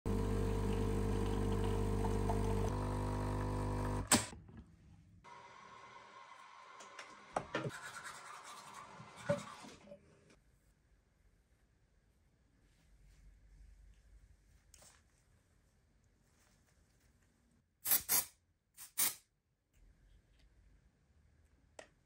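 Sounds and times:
coffee machine pump buzzing: 0.1 - 4.3.

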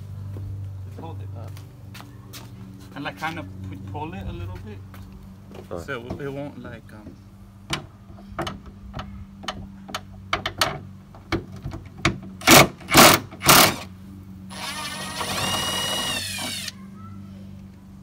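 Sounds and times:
loud short drill bursts: 12.4 - 13.9, 14.5 - 16.8
cordless drill whining: 13.4 - 13.9, 14.5 - 16.8
drill clicks: 14.5 - 16.7.

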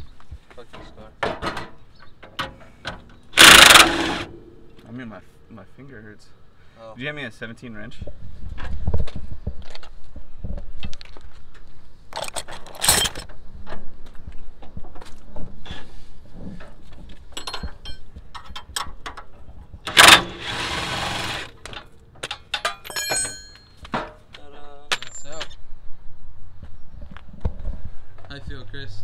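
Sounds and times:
wrenches clinking on metal: 3.4 - 4.5, 12.2 - 13.3, 17.3 - 18.8, 19.9 - 24.2, 24.9 - 25.5.

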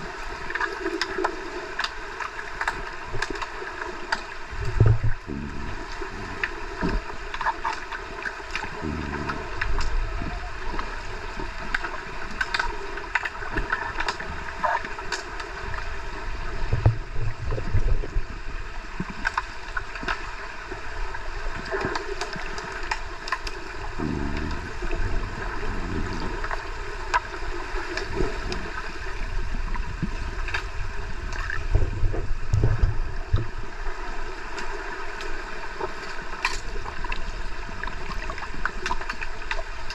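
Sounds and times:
low churning water swells: 0.0 - 39.9
muffled underwater rush of water: 0.0 - 39.9.

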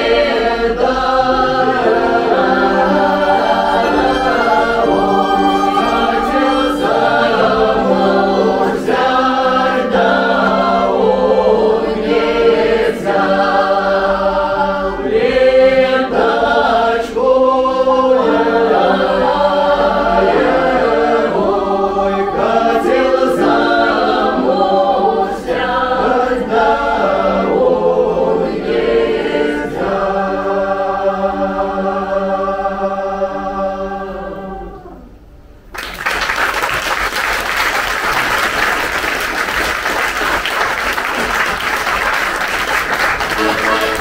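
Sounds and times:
choir singing in parts: 0.0 - 35.2, 37.5 - 44.0
audience applause: 35.7 - 44.0.

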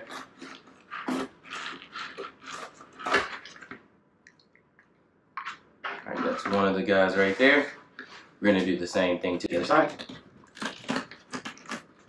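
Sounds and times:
knife scraping and cutting fish: 0.0 - 3.8, 9.9 - 12.0.

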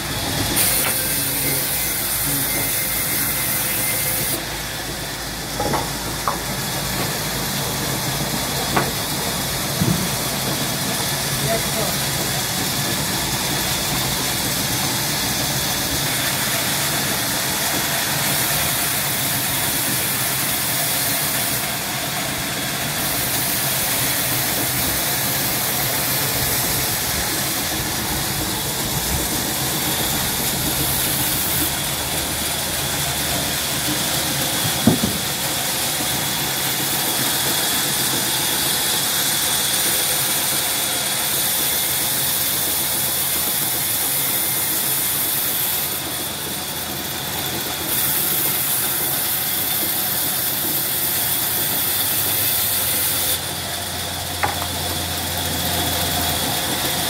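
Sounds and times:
band saw cutting wood: 0.0 - 57.0
short knock: 34.8 - 35.3.

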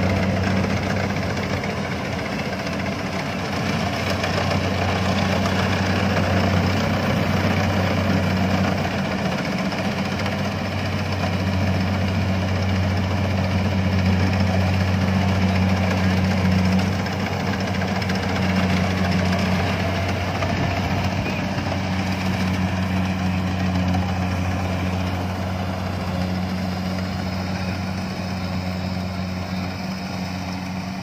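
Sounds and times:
combine harvester engine running: 0.0 - 31.0
machinery noise: 0.0 - 31.0.

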